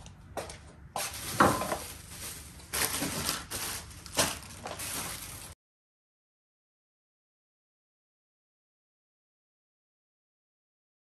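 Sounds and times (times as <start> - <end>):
groceries clattering: 1.0 - 5.6
plastic bags rustling: 1.0 - 5.6.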